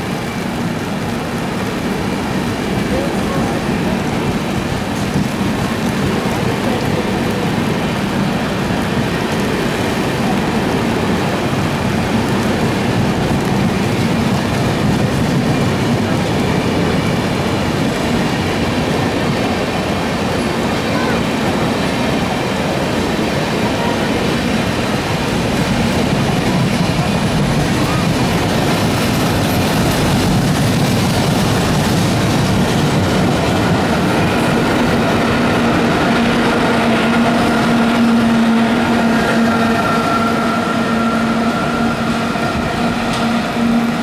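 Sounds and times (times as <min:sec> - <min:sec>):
rain drumming on umbrella: 0:00.0 - 0:40.1
train coaches rumbling past: 0:00.0 - 0:44.0.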